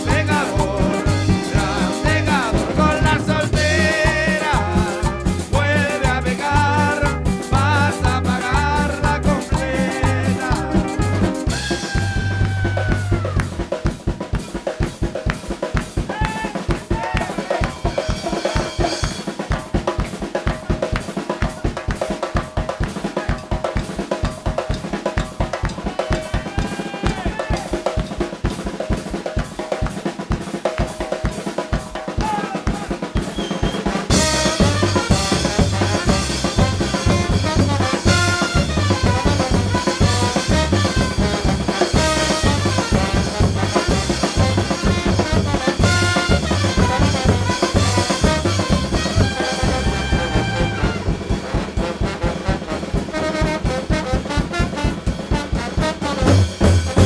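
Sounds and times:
heavy bass: 0.0s - 14.4s, 34.0s - 57.0s
cumbia music: 0.0s - 57.0s
drum kit and percussion: 0.0s - 57.0s.

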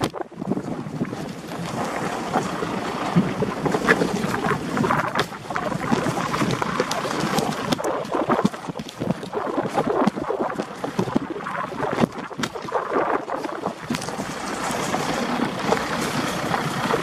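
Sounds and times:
wind noise on microphone: 0.0s - 17.0s
stones crunching and rattling: 3.8s - 17.0s.

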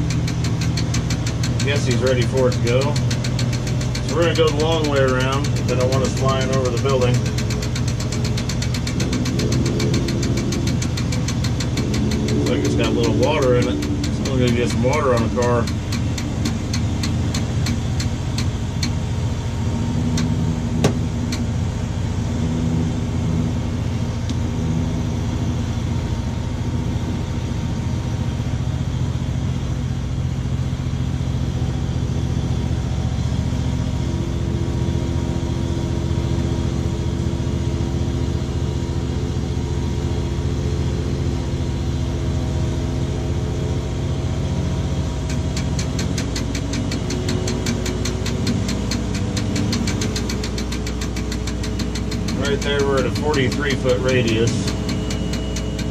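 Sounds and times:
rapid ticking: 0.0s - 19.0s, 45.3s - 55.9s
hum shifting in pitch: 0.0s - 29.0s, 37.8s - 55.9s
diesel engine running: 0.0s - 55.9s.

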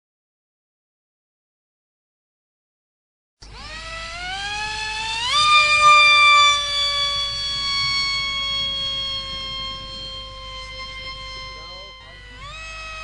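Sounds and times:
electric jet motor whining: 3.4s - 13.0s.

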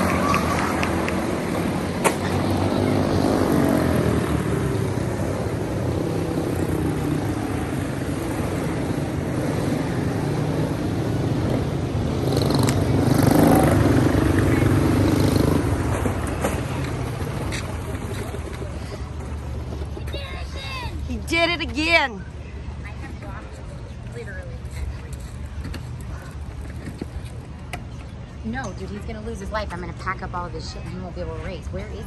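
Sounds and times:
race car engines buzzing: 0.0s - 32.0s.

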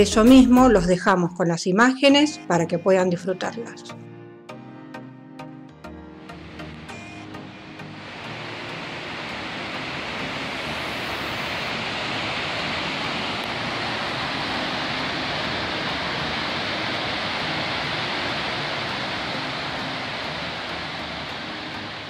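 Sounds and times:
waterfall rushing: 6.3s - 22.0s.

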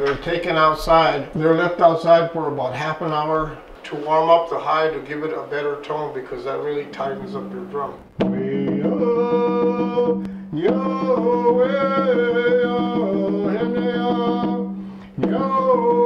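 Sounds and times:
man chanting: 0.0s - 16.0s
hand drum beating: 8.2s - 16.0s.

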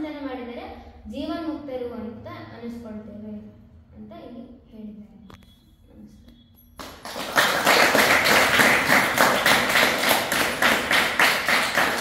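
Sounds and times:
girls clapping: 6.8s - 12.0s.

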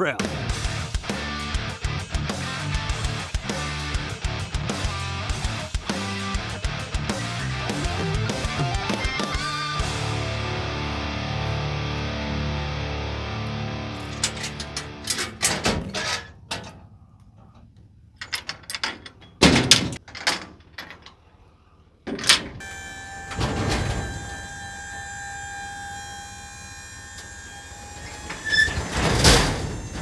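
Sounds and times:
trailer gate clanking: 14.0s - 16.9s, 18.2s - 21.2s, 22.0s - 30.0s
hydraulic pump whining: 22.3s - 30.0s.

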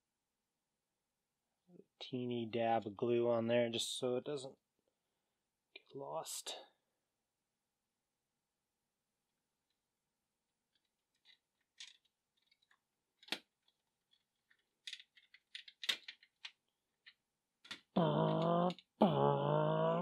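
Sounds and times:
man speaking: 2.0s - 4.6s, 5.8s - 6.8s, 18.0s - 20.0s
plastic parts clicking: 10.7s - 17.9s.

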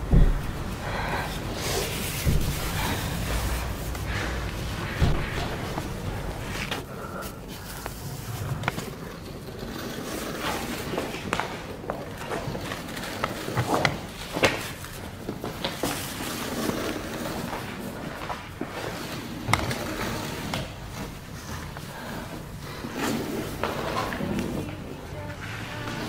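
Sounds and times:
hands and shoes hitting concrete wall: 0.0s - 0.8s
noisy room background: 0.0s - 26.0s.

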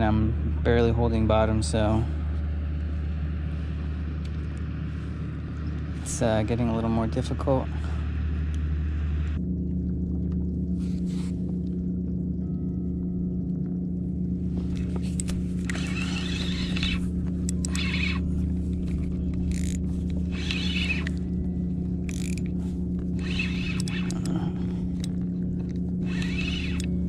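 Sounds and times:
steady low hum: 0.0s - 27.0s
fishing rod and reel handling: 14.6s - 27.0s.

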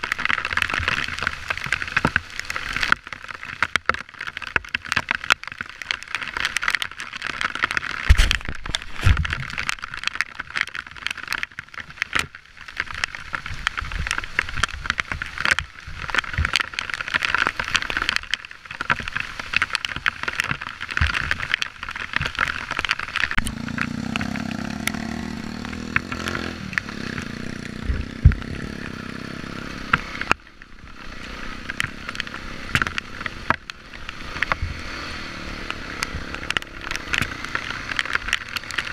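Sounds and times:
crackling clicks: 0.0s - 38.9s
dirt bike engine running: 23.4s - 38.5s.

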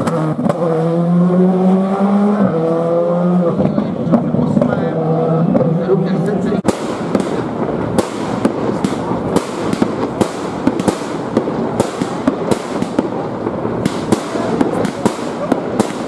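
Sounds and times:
fireworks bangs: 0.0s - 2.6s, 3.5s - 16.0s
fireworks crackling: 5.5s - 16.0s.

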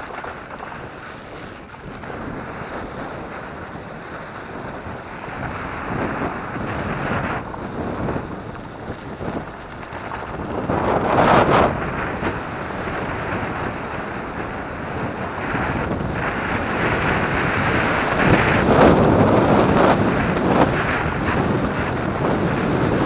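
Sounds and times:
bike knocking over rough ground: 0.0s - 12.2s
wind buffeting microphone: 0.0s - 23.0s.

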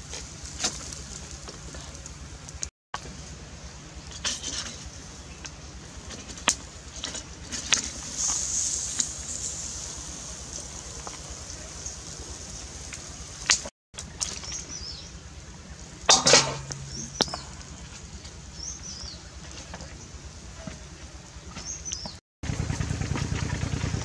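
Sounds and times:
open-air background: 0.0s - 24.0s
small birds chirping: 8.2s - 16.0s, 16.6s - 22.2s
loud sound with low hum: 22.4s - 24.0s.

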